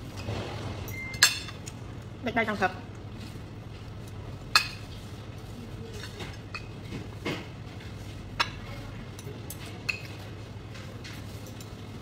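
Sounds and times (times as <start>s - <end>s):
cutlery clinking on plates: 9.2s - 10.3s.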